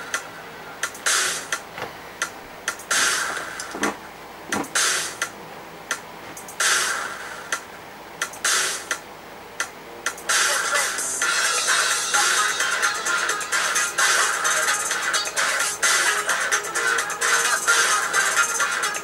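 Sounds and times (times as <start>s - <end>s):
hip-hop beat: 0.0s - 9.0s, 9.6s - 19.0s.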